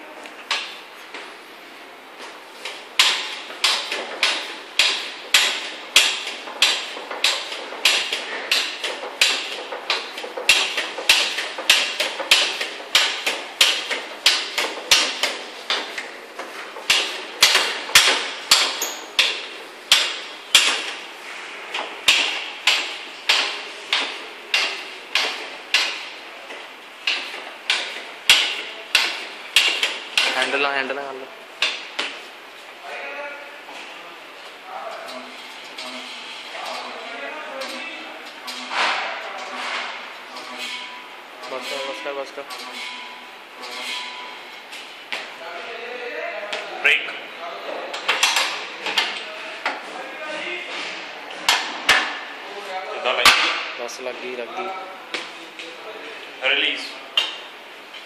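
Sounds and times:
hand stacker pumping clanks: 2.6s - 21.1s, 21.7s - 30.7s, 34.9s - 44.4s, 47.9s - 49.8s.

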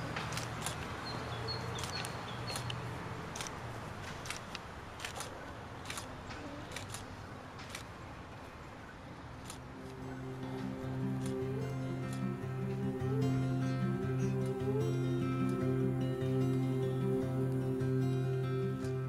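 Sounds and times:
faint irregular clicks: 1.8s - 8.0s
low hum: 9.6s - 19.0s
soft music: 9.6s - 19.0s.

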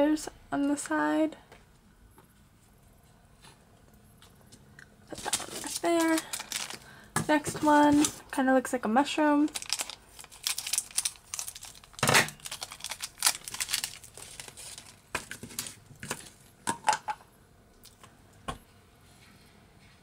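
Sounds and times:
thin plastic crinkling: 5.1s - 8.3s, 9.3s - 16.4s.

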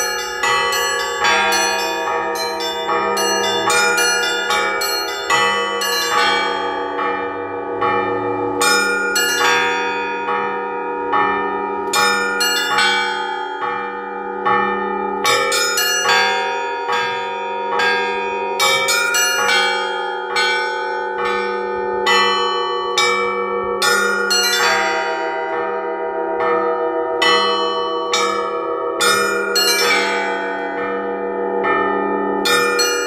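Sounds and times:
small bells striking: 0.0s - 25.3s, 27.2s - 33.0s
large bells ringing: 0.0s - 33.0s.

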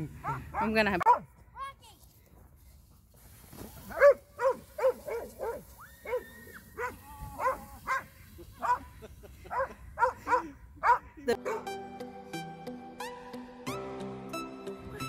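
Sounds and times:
dog barking: 0.2s - 1.3s, 3.9s - 8.8s, 9.5s - 11.7s.

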